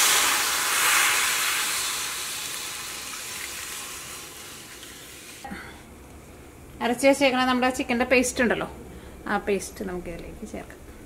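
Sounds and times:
stock sizzling in hot pan: 0:00.0 - 0:05.4.

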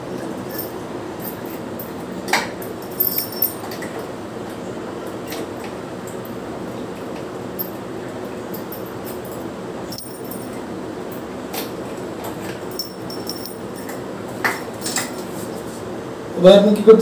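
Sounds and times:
glass and metal jar clinks: 0:02.8 - 0:03.8, 0:12.6 - 0:14.0.

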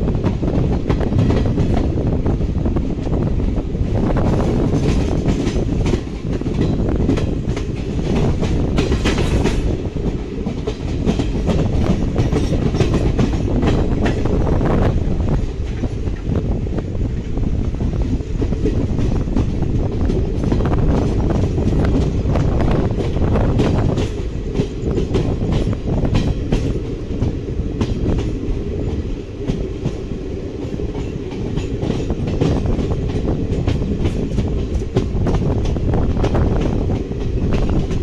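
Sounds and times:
train wheels rumbling on rails: 0:00.0 - 0:38.0
wheels clattering over rail joints: 0:04.4 - 0:14.3.

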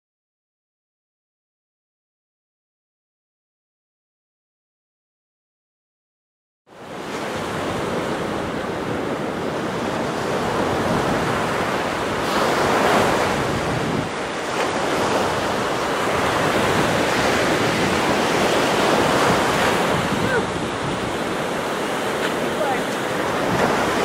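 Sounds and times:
surf breaking on beach: 0:06.7 - 0:24.0
wind buffeting microphone: 0:06.9 - 0:24.0.

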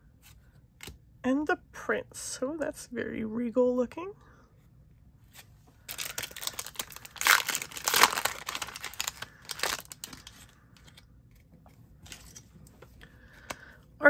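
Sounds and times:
foil wrapper crinkling: 0:05.9 - 0:11.0.

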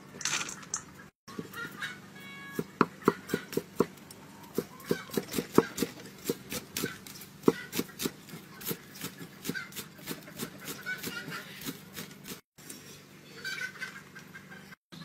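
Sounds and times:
cleaver chopping on wood: 0:02.6 - 0:09.8.

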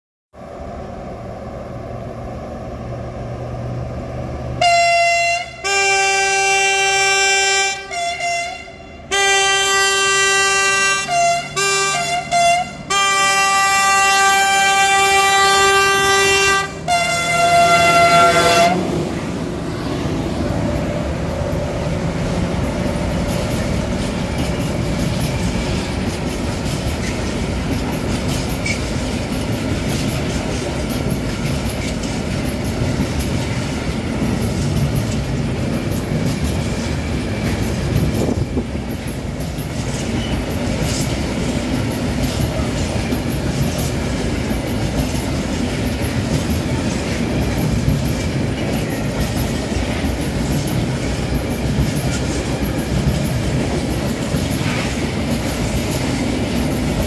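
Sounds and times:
diesel locomotive engine working hard: 0:00.4 - 0:57.0
train running-gear rumble: 0:00.4 - 0:57.0
locomotive horn blasts: 0:04.6 - 0:19.0
wheels clacking over rail joints: 0:11.1 - 0:57.0.

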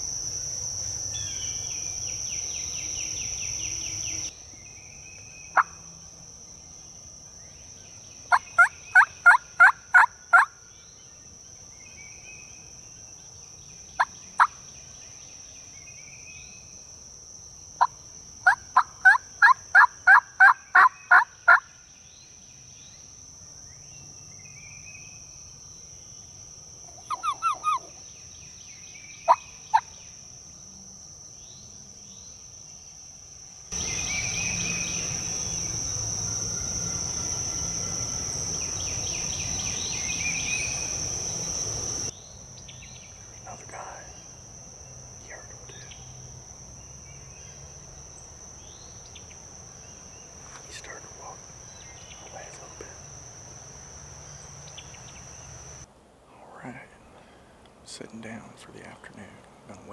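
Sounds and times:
high insect drone: 0:00.0 - 0:59.9
wild turkey yelps: 0:08.3 - 0:10.5, 0:18.4 - 0:21.6, 0:26.9 - 0:28.0
faint bird chirps: 0:26.9 - 0:30.2, 0:47.0 - 0:53.1.

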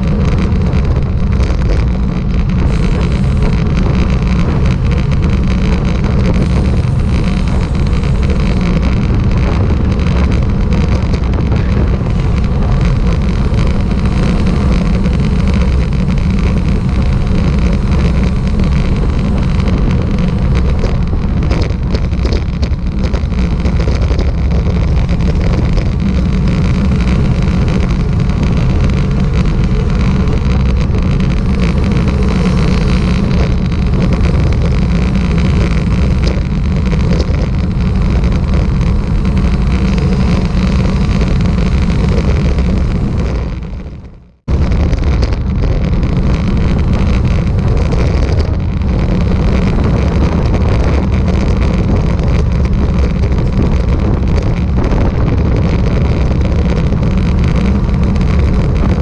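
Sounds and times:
road noise: 0:00.0 - 0:59.0
wind rumble on microphone: 0:00.0 - 0:59.0.

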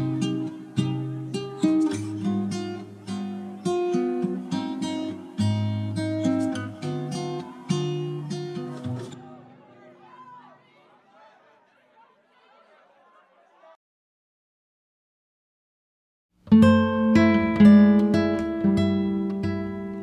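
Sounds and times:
acoustic guitar chords: 0:00.0 - 0:09.8, 0:16.4 - 0:20.0.

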